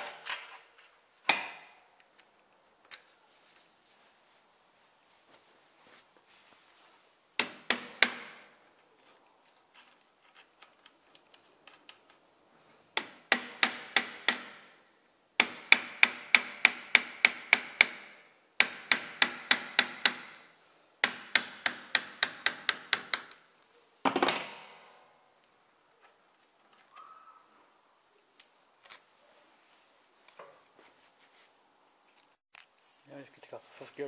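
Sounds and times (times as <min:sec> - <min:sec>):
hammer tapping steel punch: 0:01.3 - 0:01.8, 0:07.4 - 0:08.4, 0:13.0 - 0:14.7, 0:15.4 - 0:20.4, 0:21.0 - 0:23.4.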